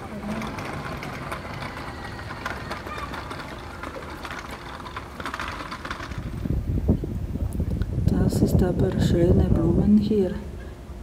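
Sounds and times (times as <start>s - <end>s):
passers-by: 0.0s - 7.0s
distant traffic: 0.0s - 7.9s.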